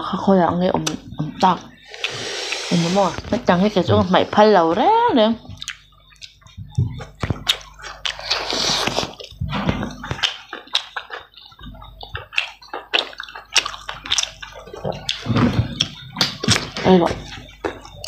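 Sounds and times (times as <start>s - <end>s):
wet chewing and lip smacking: 0.7s - 4.7s, 5.4s - 18.0s.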